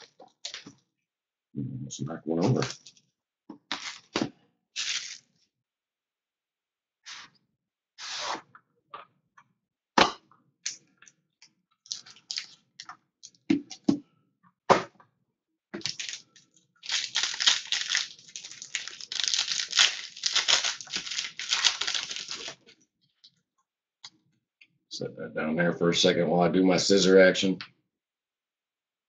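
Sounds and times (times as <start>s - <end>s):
foil pack crinkling: 3.7s - 4.2s, 4.8s - 5.3s, 11.9s - 12.9s, 15.8s - 22.7s
cardboard box crackling: 16.9s - 22.6s.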